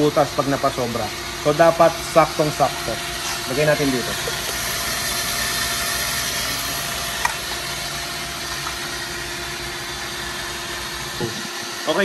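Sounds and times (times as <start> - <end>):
water pump running: 0.0 - 12.0.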